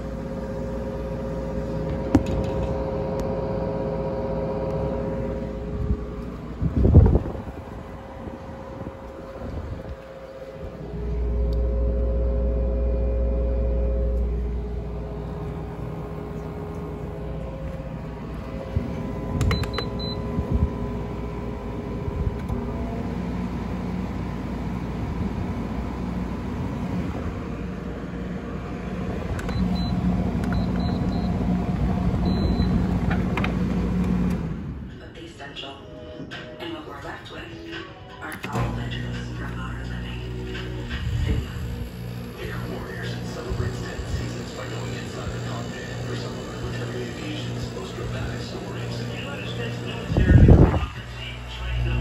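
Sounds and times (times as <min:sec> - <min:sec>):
low rumble: 0:00.0 - 0:35.1, 0:38.7 - 0:44.8
air conditioner fan hum: 0:00.0 - 0:52.0.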